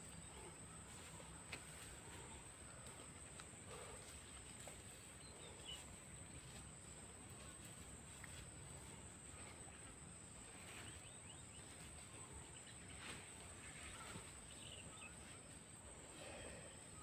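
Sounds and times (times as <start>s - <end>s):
goats rustling in dry grass: 0.8s - 9.7s.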